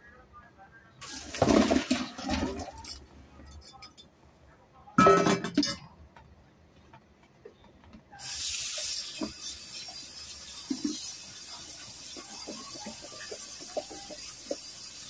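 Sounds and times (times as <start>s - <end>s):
tap water running into colander: 1.0s - 3.0s, 8.2s - 15.0s.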